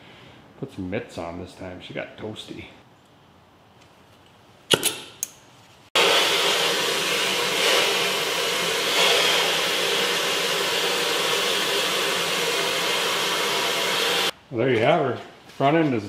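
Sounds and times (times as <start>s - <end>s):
torch flame hissing: 6.0s - 14.4s.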